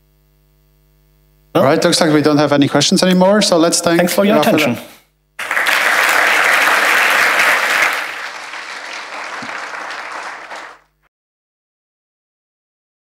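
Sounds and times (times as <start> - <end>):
audience applauding: 5.4 - 10.9.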